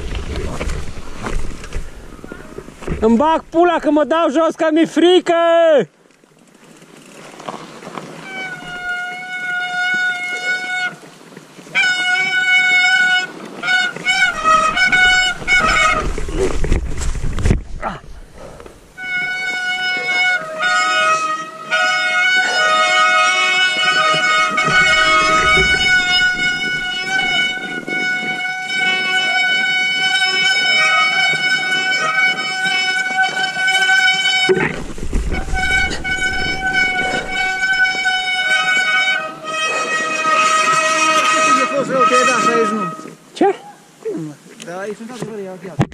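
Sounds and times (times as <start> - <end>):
rumbling noise: 0.0 - 4.0, 14.1 - 19.0, 24.5 - 28.4, 34.4 - 38.5
low rumble: 24.6 - 27.9, 34.5 - 38.3.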